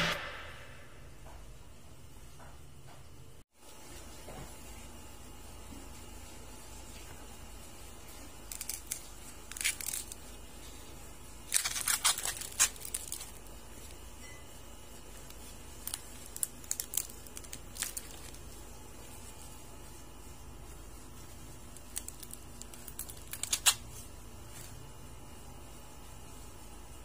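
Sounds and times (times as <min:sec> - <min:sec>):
corn silk crackling: 0:07.6 - 0:14.1, 0:14.8 - 0:24.8
corn husks ripping: 0:08.4 - 0:10.4, 0:11.4 - 0:13.5, 0:15.2 - 0:18.5, 0:21.8 - 0:24.0.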